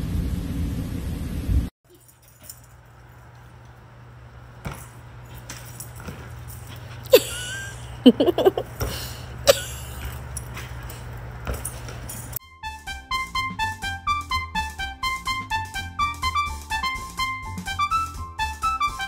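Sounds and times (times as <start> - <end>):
low rumbling noise: 0.0 - 1.7.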